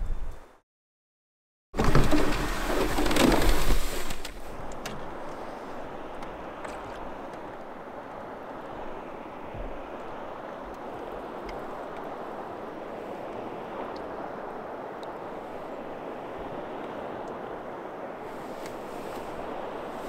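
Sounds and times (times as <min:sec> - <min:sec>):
wind: 0:00.0 - 0:00.6, 0:01.7 - 0:20.0
water lapping against canoe hull: 0:01.8 - 0:17.5.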